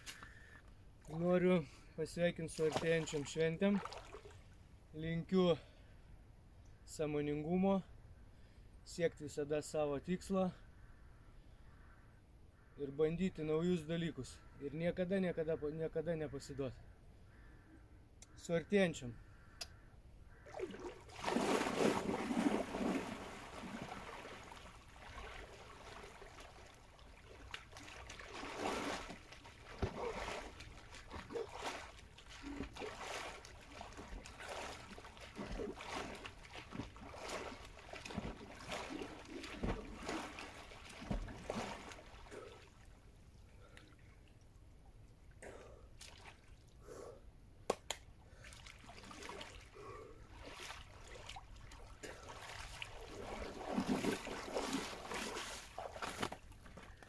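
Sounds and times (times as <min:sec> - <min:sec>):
water sloshing and lapping: 0:02.4 - 0:04.7, 0:20.3 - 0:47.0, 0:48.1 - 0:57.0
water splashing: 0:02.5 - 0:04.5, 0:20.4 - 0:43.0, 0:48.4 - 0:57.0.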